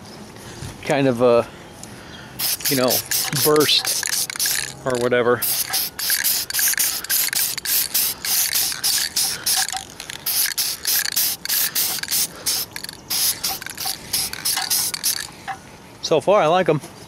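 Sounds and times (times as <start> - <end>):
spray paint can hissing in bursts: 2.4 - 15.4.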